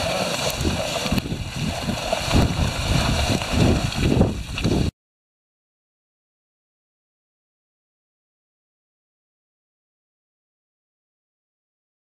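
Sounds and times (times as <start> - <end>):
wind buffeting microphone: 0.0 - 4.9.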